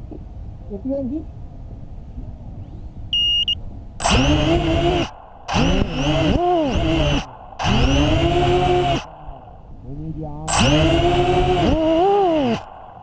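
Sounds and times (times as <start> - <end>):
electronic beep: 3.1 - 3.6
drone motors whirring: 4.0 - 9.7, 10.4 - 13.0.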